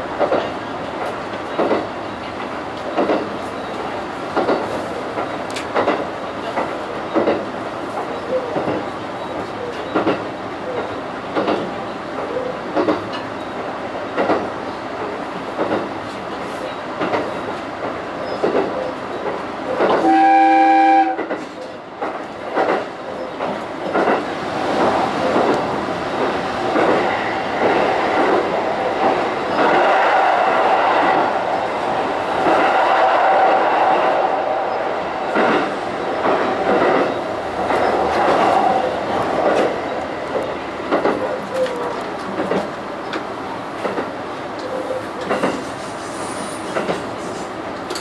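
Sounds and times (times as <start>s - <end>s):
train wheels clicking on rail joints: 0.0s - 20.1s, 20.8s - 33.6s, 35.2s - 48.0s
train running hum: 0.0s - 48.0s
train horn blast: 20.0s - 21.3s.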